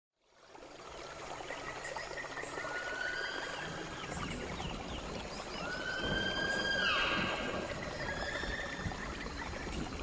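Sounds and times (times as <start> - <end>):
thin whistled calls: 4.9 - 9.7.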